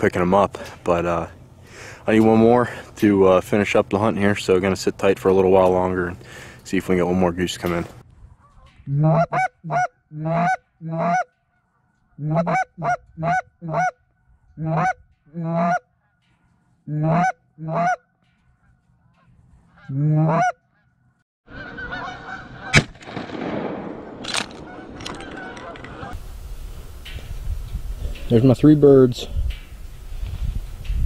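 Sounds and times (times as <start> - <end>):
goose call honking: 8.3 - 16.2, 16.9 - 22.8
rustle of movement: 18.2 - 19.9
shotgun shot: 22.7 - 25.0.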